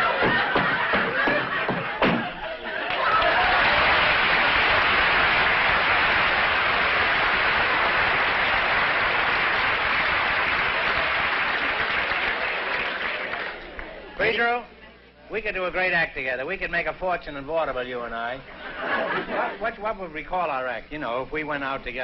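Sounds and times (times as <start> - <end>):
audience applauding: 2.8 - 14.1.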